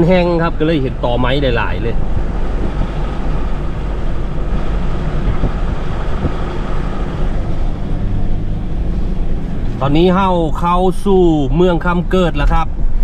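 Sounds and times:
tyre noise on road: 0.0s - 13.0s
vehicle engine: 0.0s - 13.0s
wind noise: 1.7s - 9.8s.

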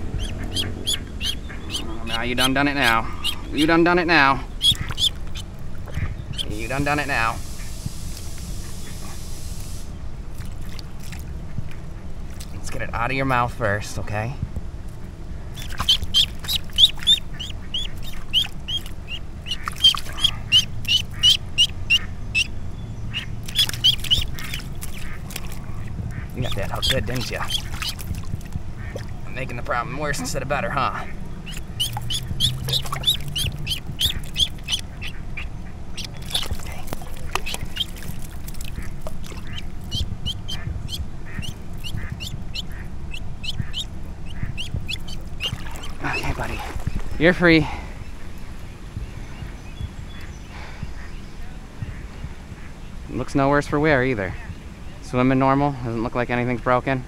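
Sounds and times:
duckling peeping: 0.0s - 7.8s, 15.5s - 47.2s, 49.0s - 52.8s.

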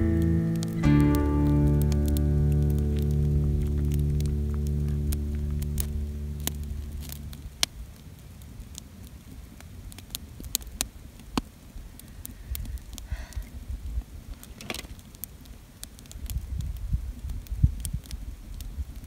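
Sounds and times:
campfire crackling and popping: 0.0s - 19.0s
wind rumble on microphone: 11.8s - 15.0s, 16.0s - 19.0s.

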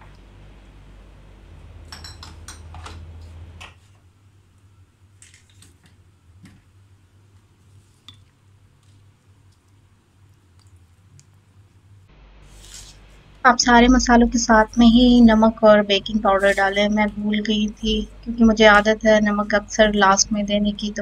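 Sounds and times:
low hum: 0.0s - 3.6s, 11.6s - 21.0s
kitchen utensils clinking: 1.9s - 2.9s.

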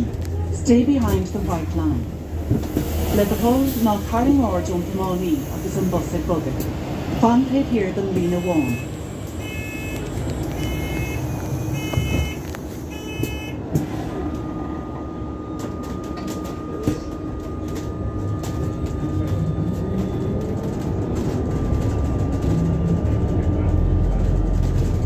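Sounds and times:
bus road rumble: 0.0s - 25.0s
short electronic beeps: 8.2s - 13.6s.

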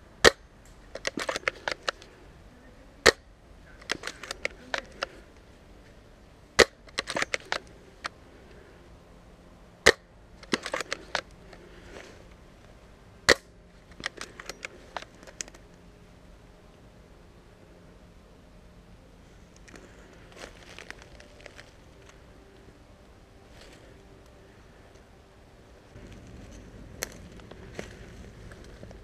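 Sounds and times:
airsoft rifle shots: 6.6s - 7.6s.

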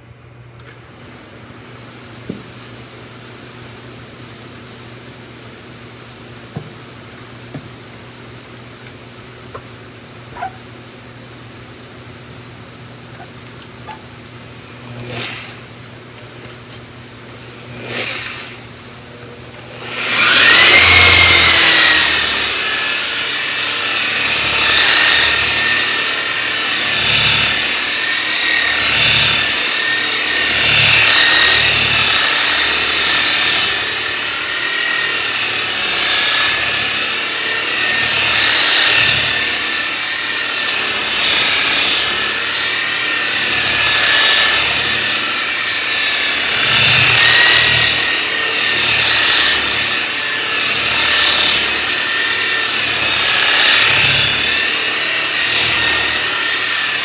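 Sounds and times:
rotary polisher motor whine: 8.8s - 10.8s, 13.1s - 15.7s, 17.4s - 57.0s
pad rubbing on paint: 10.4s - 10.6s.

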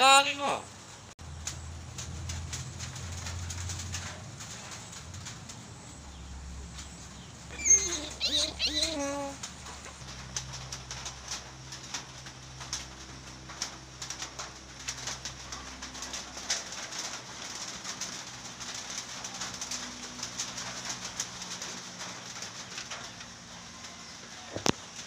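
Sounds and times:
bird cooing softly: 7.5s - 9.4s.

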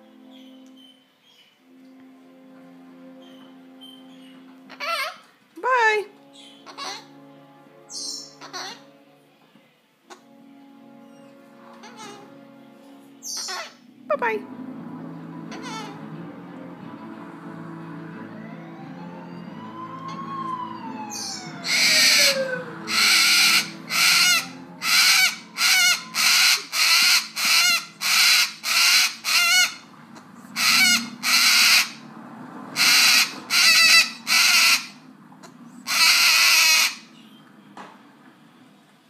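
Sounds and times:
cockatoo screeching: 8.4s - 8.8s, 21.1s - 29.9s, 30.6s - 32.0s, 32.8s - 35.0s, 35.8s - 37.1s
siren wailing on tv: 14.5s - 38.7s.

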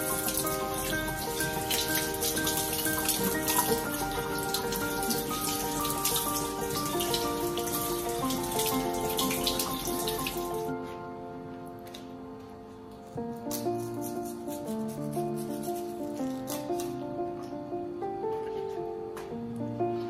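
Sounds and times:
faucet water splashing: 0.0s - 10.7s
background music with melody: 0.0s - 20.0s.

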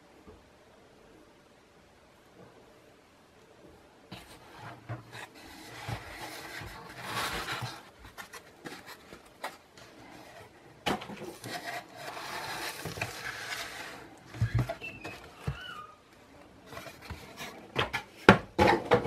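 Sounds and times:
foam and cardboard rustling: 4.1s - 15.9s, 16.5s - 18.4s.

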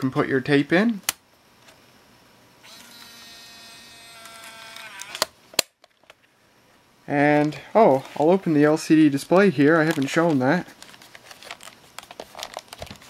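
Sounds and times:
small motor whining: 2.6s - 5.2s.

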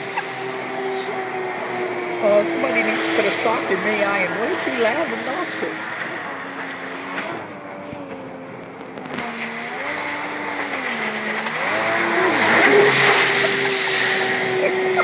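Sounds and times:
jet ski engine running: 0.0s - 15.0s
water spray: 9.2s - 15.0s.

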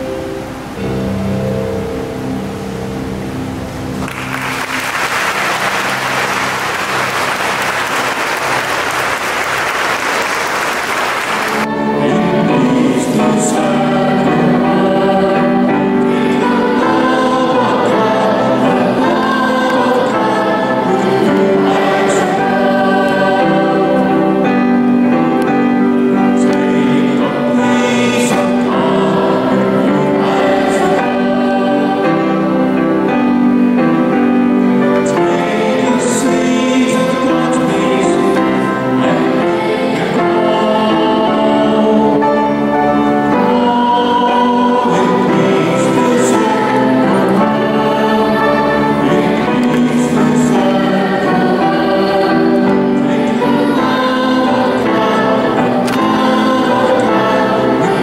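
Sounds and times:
choir singing with instruments: 0.0s - 58.0s
audience applauding: 4.0s - 11.7s.

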